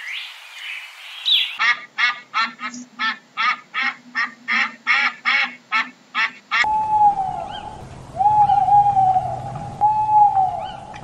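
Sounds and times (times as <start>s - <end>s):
owl calling: 1.2s - 11.0s
ducks calling: 1.4s - 6.8s.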